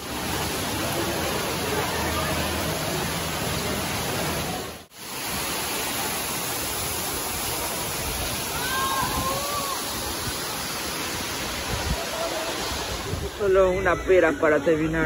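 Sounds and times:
water cascading: 0.0 - 15.0
water pouring and dripping: 0.0 - 15.0.

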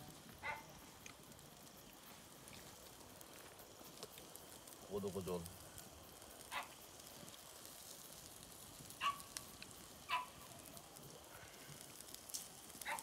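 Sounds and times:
campfire crackling: 0.0 - 13.0
dog barking: 0.4 - 0.7, 6.5 - 6.7, 9.0 - 9.3, 10.1 - 10.7.

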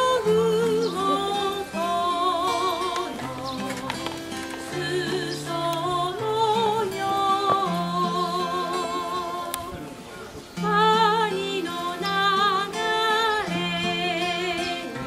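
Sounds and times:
woman singing with vibrato: 0.0 - 9.7, 10.6 - 15.0
acoustic guitar: 0.0 - 15.0.

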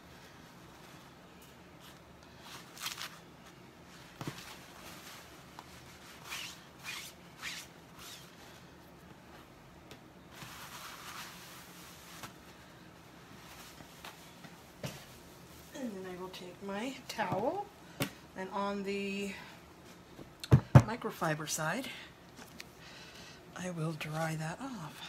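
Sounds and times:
wipe rubbing and swishing: 4.4 - 8.3, 10.3 - 12.4.

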